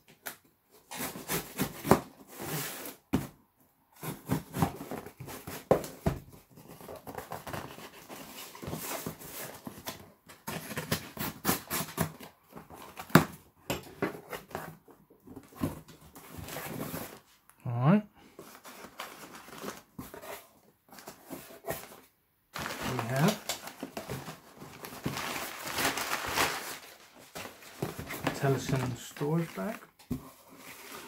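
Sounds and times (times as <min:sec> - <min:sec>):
paper rustling: 0:22.6 - 0:31.0.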